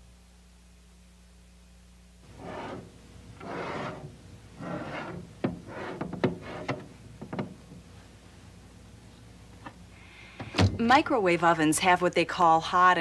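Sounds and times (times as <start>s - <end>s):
dish scraping in microwave: 2.3s - 7.6s
sharp clicks and knocks: 5.1s - 7.6s.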